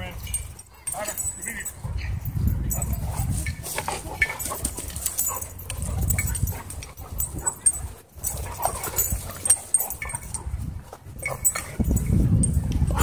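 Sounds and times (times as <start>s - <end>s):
dogs growling: 2.9s - 10.5s.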